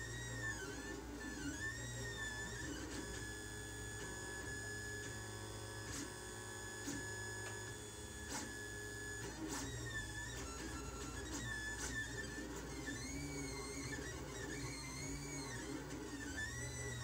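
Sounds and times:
stepper motors whining: 0:06.8 - 0:17.0.

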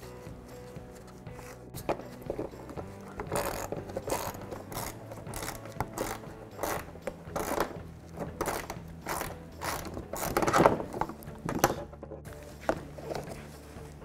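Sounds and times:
hand ratchet clicking: 0:03.2 - 0:11.2.

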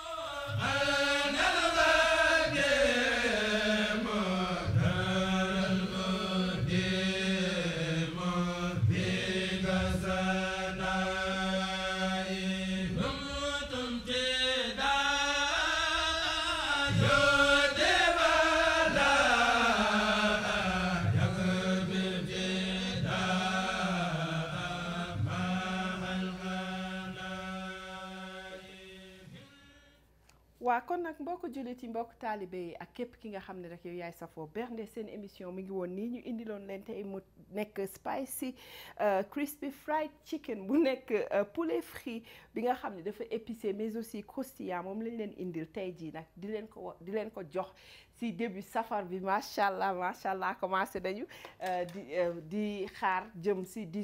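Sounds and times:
chanted vocal melody: 0:00.0 - 0:30.1
steady held drone: 0:00.6 - 0:29.8.

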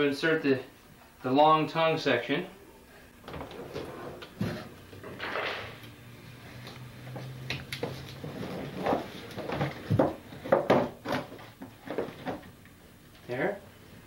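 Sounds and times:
bike parts knocking in plastic case: 0:08.8 - 0:12.4.

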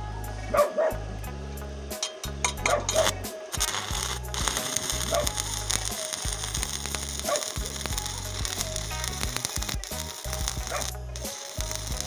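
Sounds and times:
welding arc burning: 0:02.5 - 0:12.0.

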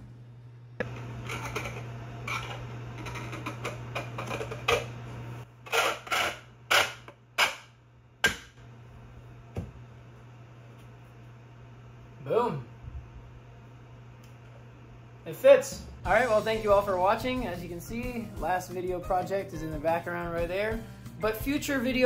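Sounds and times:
sharp plastic scrapes: 0:05.6 - 0:07.7.

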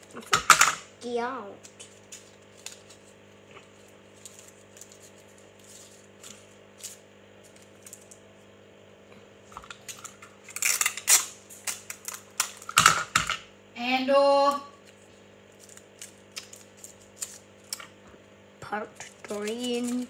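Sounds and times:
paper and tape rustling: 0:01.6 - 0:08.1, 0:15.6 - 0:17.9, 0:19.0 - 0:20.0
crinkling and tapping: 0:18.9 - 0:20.0.

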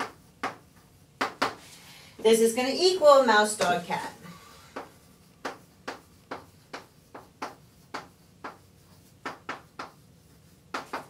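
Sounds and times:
chalk tapping on blackboard: 0:00.0 - 0:01.6, 0:04.7 - 0:11.0.

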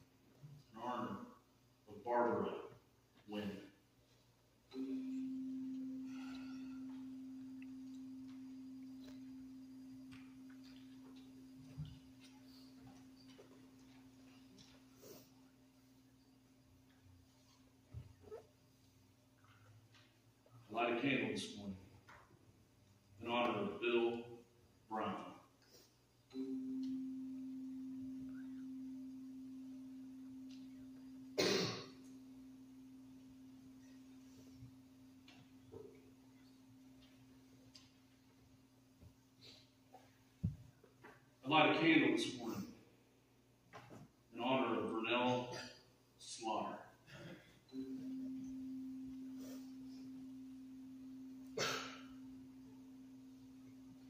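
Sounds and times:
low bell ringing: 0:04.7 - 0:14.5
low bell tone ringing: 0:04.7 - 0:15.2, 0:26.3 - 0:38.2, 0:47.7 - 0:54.0.

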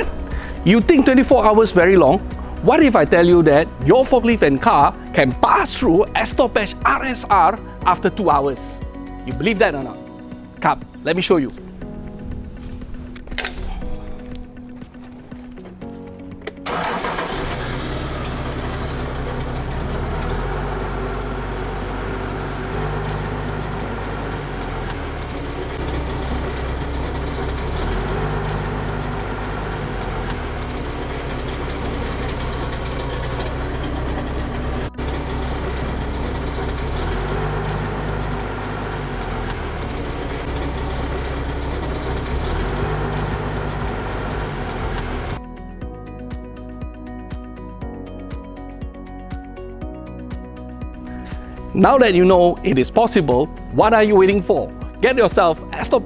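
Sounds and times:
forklift engine running: 0:00.0 - 0:07.2, 0:14.0 - 0:45.5.

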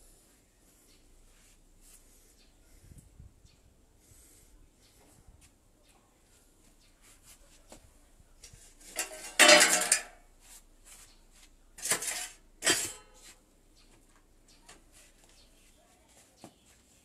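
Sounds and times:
metal lid clanging: 0:08.9 - 0:10.2, 0:11.8 - 0:13.2.

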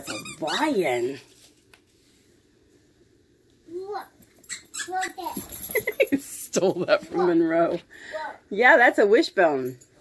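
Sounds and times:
toy squeak: 0:00.0 - 0:00.7, 0:04.4 - 0:05.4.

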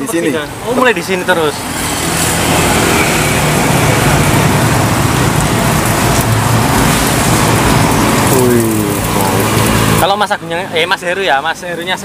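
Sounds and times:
road traffic: 0:00.0 - 0:12.0
food sizzling in hot oil: 0:01.6 - 0:10.0.

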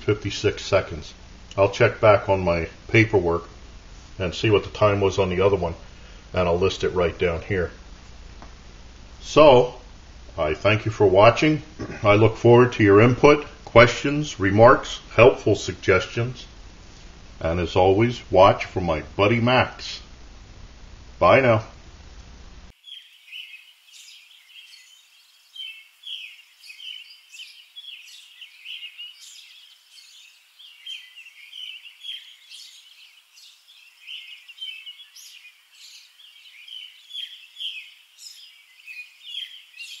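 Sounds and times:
songbirds chirping and singing: 0:22.8 - 0:40.0.

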